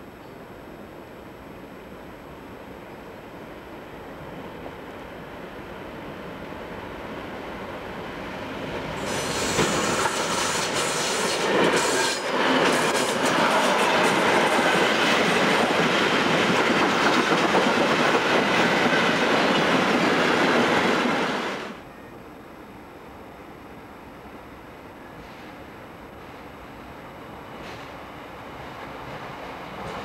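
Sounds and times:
diesel locomotive passing: 0:03.2 - 0:22.2.

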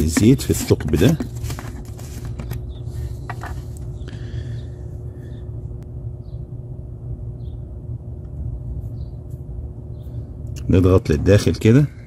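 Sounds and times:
constant hum: 0:00.0 - 0:12.0
low background rumble: 0:00.0 - 0:12.0.

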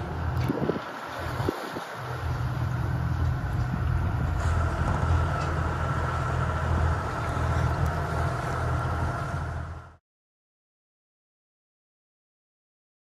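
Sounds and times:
boat engine humming: 0:00.0 - 0:10.0
water noise: 0:00.0 - 0:10.0
wind: 0:00.0 - 0:10.0.

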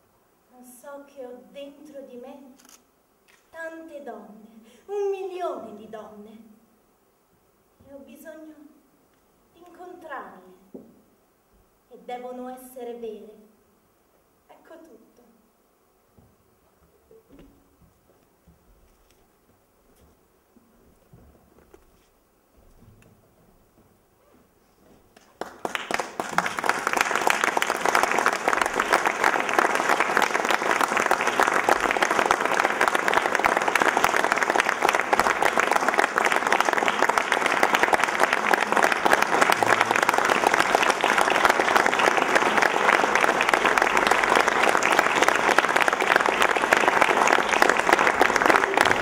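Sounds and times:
audience applauding: 0:25.1 - 0:49.0.

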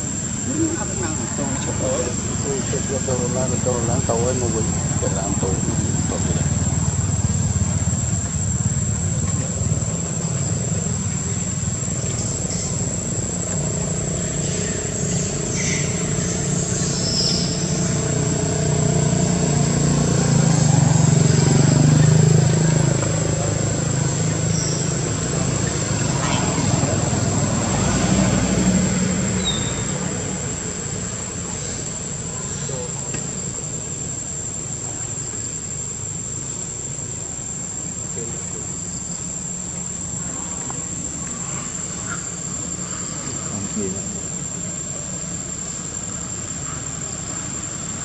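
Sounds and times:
high-pitched insect drone: 0:00.0 - 0:48.0
vehicle engine rumble: 0:00.0 - 0:48.0.

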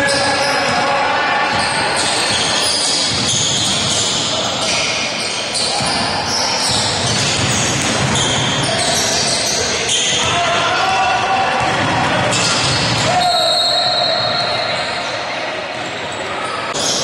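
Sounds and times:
basketball bouncing on court: 0:01.5 - 0:04.3, 0:05.6 - 0:10.5, 0:11.5 - 0:13.4.

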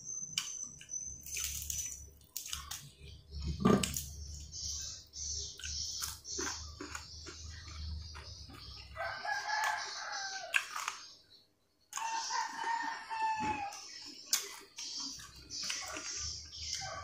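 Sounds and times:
rooster crowing: 0:08.9 - 0:10.7, 0:12.0 - 0:13.9.

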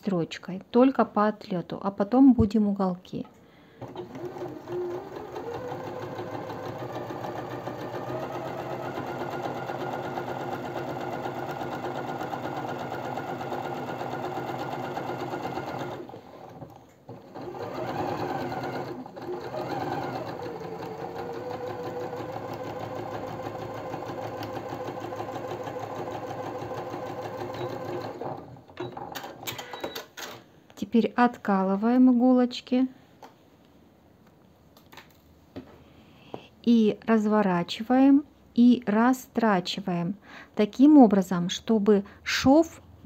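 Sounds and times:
electric sewing machine stitching: 0:03.8 - 0:28.7.

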